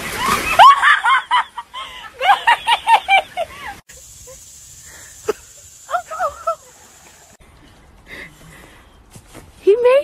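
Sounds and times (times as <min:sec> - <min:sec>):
person laughing in wheezy bursts: 0:01.8 - 0:06.8
steady high hiss: 0:02.2 - 0:07.4.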